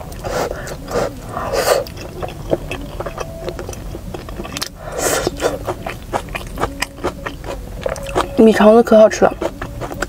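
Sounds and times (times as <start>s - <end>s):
wet mouth clicks: 0.0s - 8.3s
chewing food: 0.0s - 10.0s.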